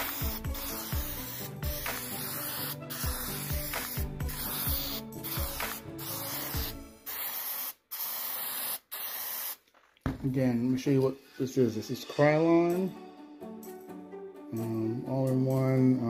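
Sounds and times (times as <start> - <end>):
background music with low beat: 0.0 - 7.2, 10.1 - 16.0
spray paint can hissing: 0.0 - 9.7.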